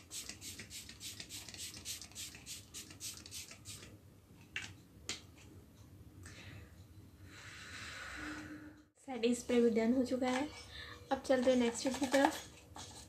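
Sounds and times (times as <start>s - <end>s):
spray bottle spritzing: 0.0s - 3.9s.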